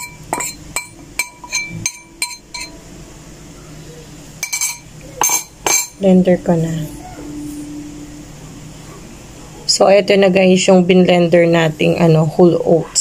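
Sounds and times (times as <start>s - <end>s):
metal fork clinking on plate: 0.0s - 2.7s, 4.4s - 6.0s.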